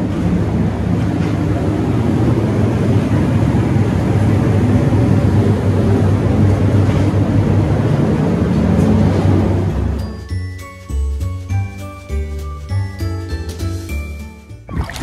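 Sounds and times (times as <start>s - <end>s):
ventilation fans droning: 0.0s - 10.4s.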